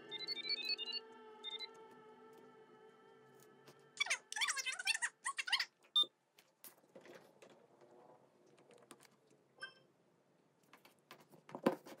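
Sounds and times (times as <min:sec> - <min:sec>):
short electronic beep: 0:00.0 - 0:01.7.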